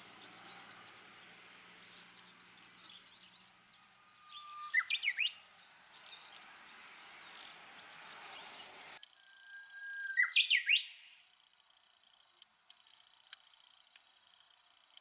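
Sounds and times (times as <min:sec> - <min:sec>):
bush warbler singing: 0:00.0 - 0:11.3.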